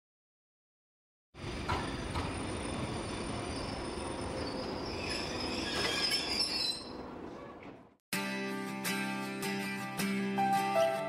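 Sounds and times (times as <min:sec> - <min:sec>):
train knocks: 0:01.4 - 0:03.4
train wheels rumbling on rail: 0:01.4 - 0:07.9
high-pitched wheel squealing: 0:01.8 - 0:07.1.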